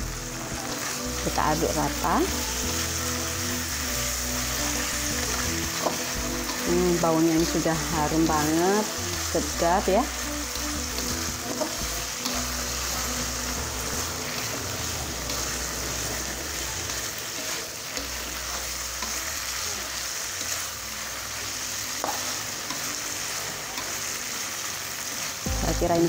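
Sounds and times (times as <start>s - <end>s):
food sizzling in oil: 0.0s - 26.0s
metal spatula scraping pan: 10.5s - 19.2s.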